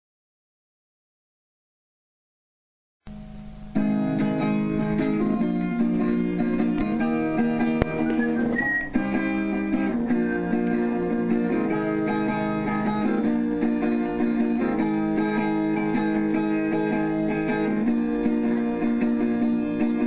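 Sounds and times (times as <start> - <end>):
strummed guitar music: 3.1 - 20.0
short high tone: 8.1 - 9.0.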